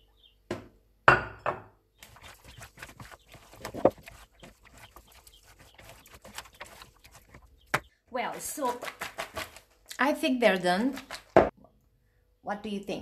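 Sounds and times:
vegetable slices rustling in bowl: 2.0 - 7.6.

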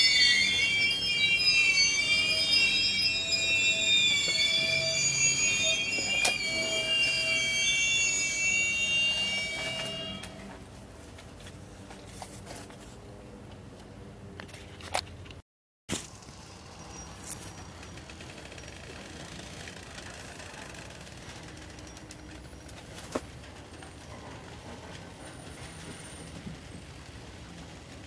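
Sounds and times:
train wheels squealing: 0.0 - 10.7, 16.2 - 28.0.

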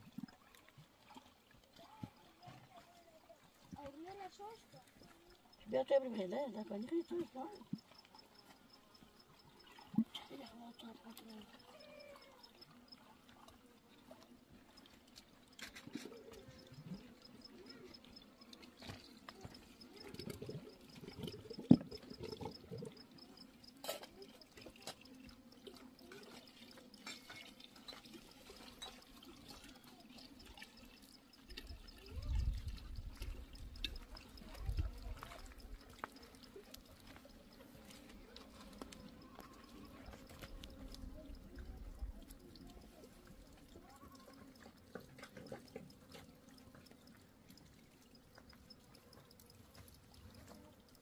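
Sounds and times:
water trickling and dripping: 0.0 - 51.0.

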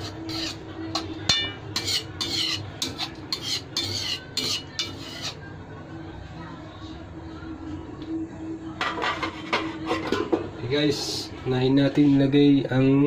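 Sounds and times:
metal spoon scraping steel pan: 0.0 - 5.5.

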